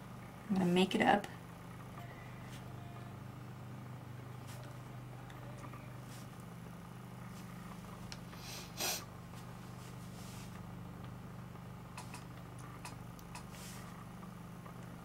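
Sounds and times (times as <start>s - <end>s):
low hum: 0.0s - 15.0s
person sniffing: 8.4s - 9.1s.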